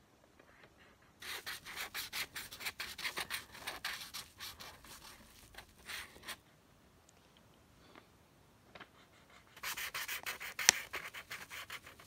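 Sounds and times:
scribbling on paper: 0:01.2 - 0:06.4, 0:09.1 - 0:12.0.

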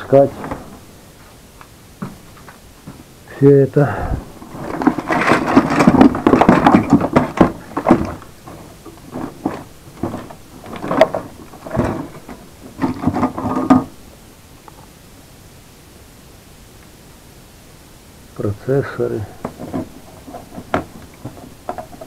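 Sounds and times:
electronic parts clattering in a box: 0:04.4 - 0:13.9, 0:19.4 - 0:22.0.

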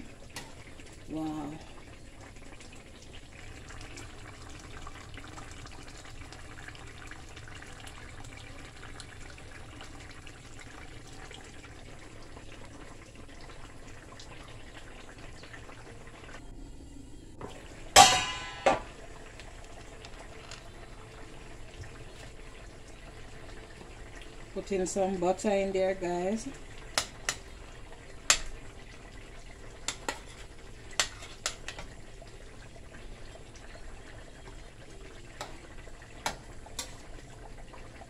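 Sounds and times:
fish simmering in a pan: 0:00.0 - 0:38.0
sharp metallic clanks: 0:18.0 - 0:18.9.

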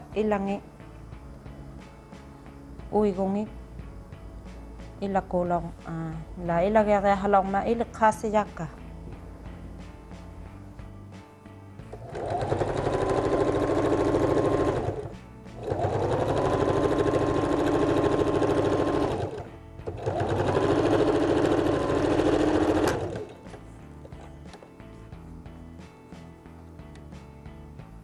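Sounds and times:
sewing machine stitching: 0:12.0 - 0:23.4.

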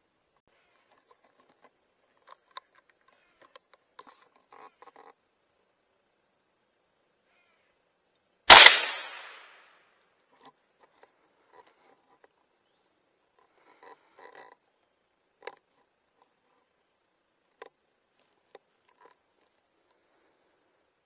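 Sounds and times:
gunshot with echo: 0:08.5 - 0:09.5.

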